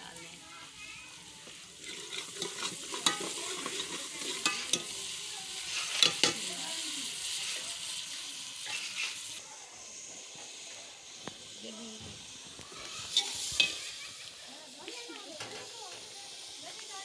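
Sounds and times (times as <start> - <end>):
food sizzling in hot oil: 0.0 - 17.0
metal spoon clinking pot: 1.8 - 5.0, 6.0 - 6.5, 13.2 - 13.8.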